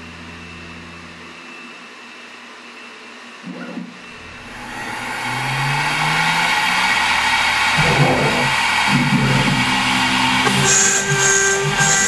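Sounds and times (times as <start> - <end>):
low motor hum: 0.0 - 1.6, 4.0 - 12.0
router spindle whine: 0.0 - 3.4, 4.0 - 12.0.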